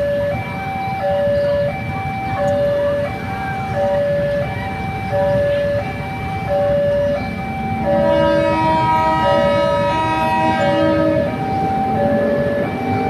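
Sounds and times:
train horn chord: 0:07.8 - 0:13.0.

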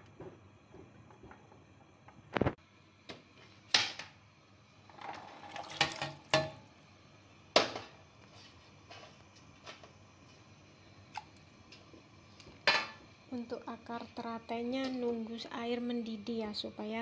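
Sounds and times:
metal bowl knocking on pot: 0:05.8 - 0:06.7.

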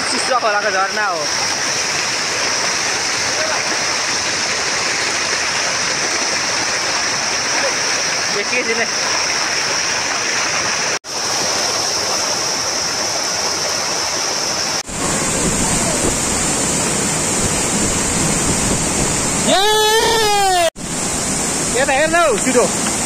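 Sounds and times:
waterfall pouring onto rocks: 0:00.0 - 0:14.0, 0:14.7 - 0:23.0
person calling out: 0:19.4 - 0:20.7.

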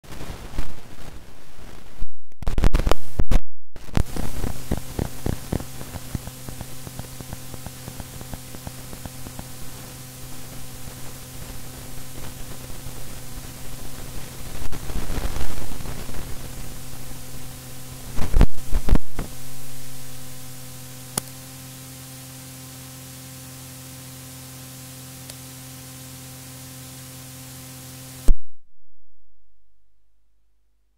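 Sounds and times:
dense crackling: 0:00.0 - 0:21.3
loud harsh static bursts: 0:00.0 - 0:28.3
static hiss: 0:00.0 - 0:28.3
steady electrical hum: 0:03.8 - 0:30.9
single click: 0:21.2 - 0:21.4.

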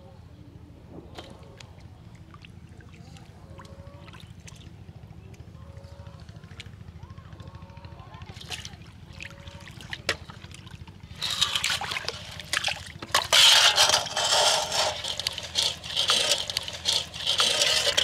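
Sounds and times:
muddy water splashing into basin: 0:08.3 - 0:18.0.

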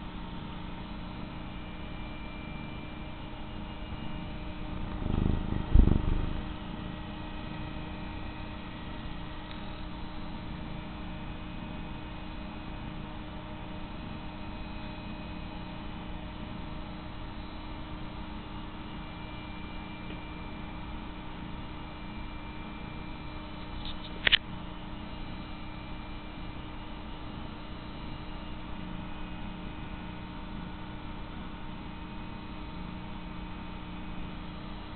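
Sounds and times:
electrical hum: 0:00.0 - 0:34.9
cat purring: 0:04.2 - 0:07.0
short sharp click: 0:23.8 - 0:24.4.

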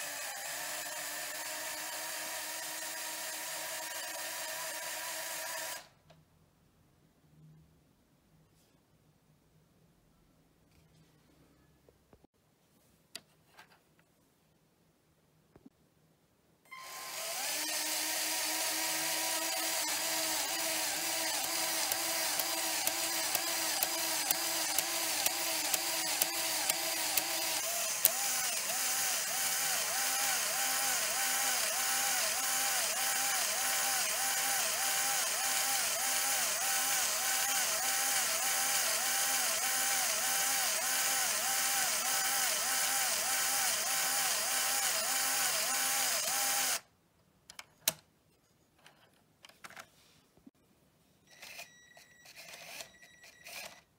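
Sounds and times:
small electric motor whining: 0:00.0 - 0:05.9, 0:16.7 - 0:46.8.

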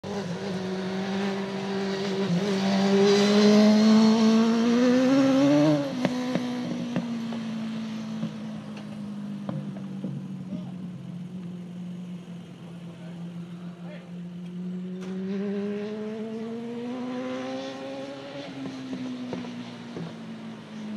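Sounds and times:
race car engine accelerating: 0:00.0 - 0:20.9.

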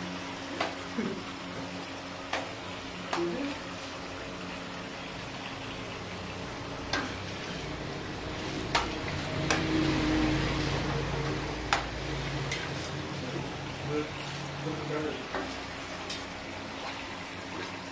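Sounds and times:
broth bubbling with hiss: 0:00.0 - 0:17.9
ladles stirring pot: 0:06.8 - 0:17.9.

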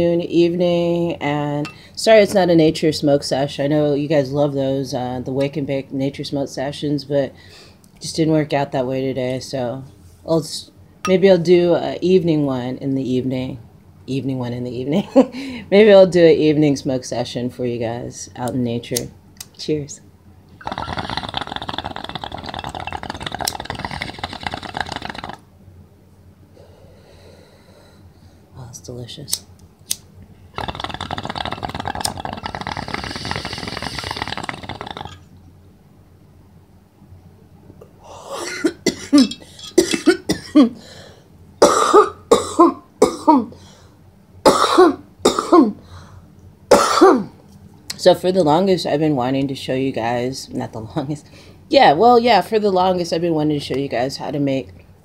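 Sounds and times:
water bubbling in a bong: 0:20.6 - 0:25.4, 0:30.6 - 0:35.4
woman coughing harshly: 0:38.4 - 0:40.8, 0:41.6 - 0:43.5, 0:44.5 - 0:45.8, 0:46.7 - 0:47.3.

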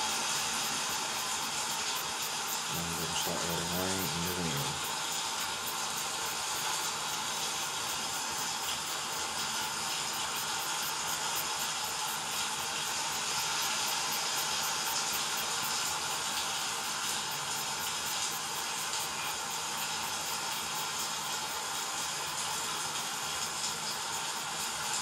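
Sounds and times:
rain and wind hissing: 0:00.0 - 0:19.2.

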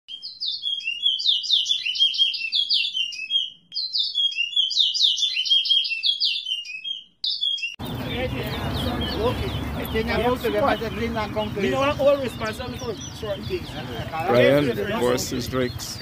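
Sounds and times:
songbird twittering song: 0:00.1 - 0:16.0
crowd noise and voices: 0:07.8 - 0:16.0.

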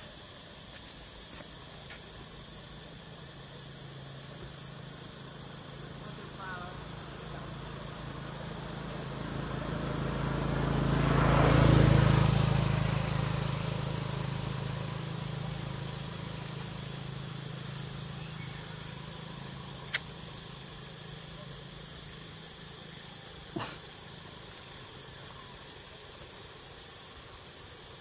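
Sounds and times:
vehicle passing on road: 0:05.9 - 0:23.0
sharp click: 0:19.9 - 0:20.1.

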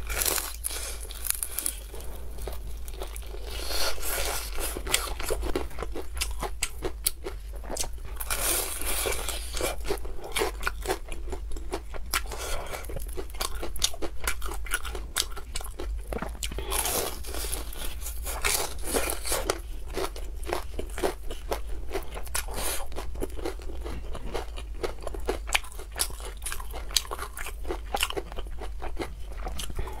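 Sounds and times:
crunching and chewing: 0:00.0 - 0:30.0.

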